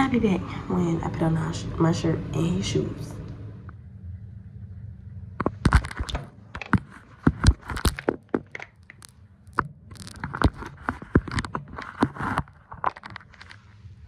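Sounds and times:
handling clicks and knocks: 0:05.4 - 0:13.6
rustling and scraping: 0:05.4 - 0:14.0.

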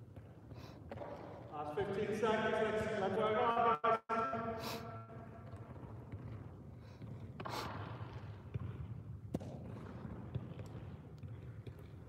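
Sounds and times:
foot tapping ball: 0:00.0 - 0:01.5, 0:05.1 - 0:12.0.

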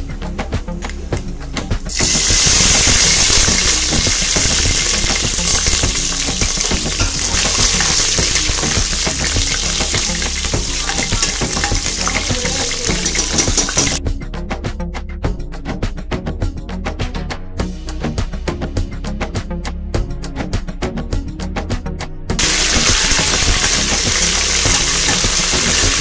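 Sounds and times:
background music: 0:00.0 - 0:26.0
chillies sizzling in hot oil: 0:01.9 - 0:14.0, 0:22.4 - 0:26.0.

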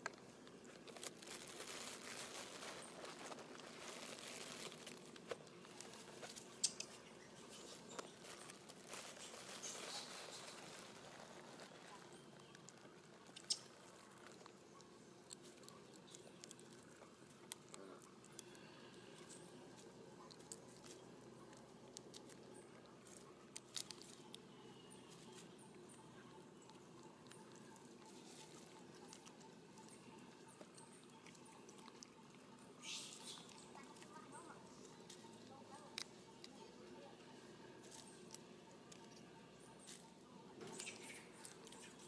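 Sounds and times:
footsteps crackling on dry leaves: 0:00.1 - 0:14.6, 0:18.3 - 0:25.6, 0:27.5 - 0:30.4.

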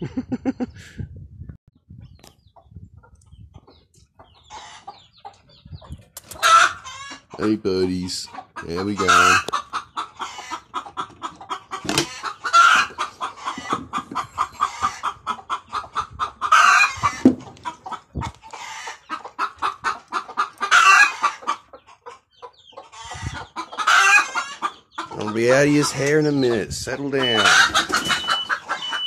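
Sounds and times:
chickens clucking: 0:01.8 - 0:29.0
chicken squawking cackle: 0:04.2 - 0:29.0.

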